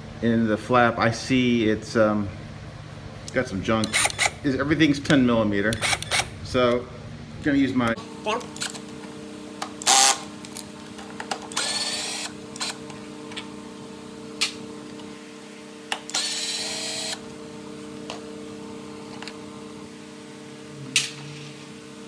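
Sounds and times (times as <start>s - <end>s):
cordless drill spinning nuts: 3.9s - 4.4s, 9.9s - 10.2s, 11.5s - 12.8s, 16.0s - 17.2s.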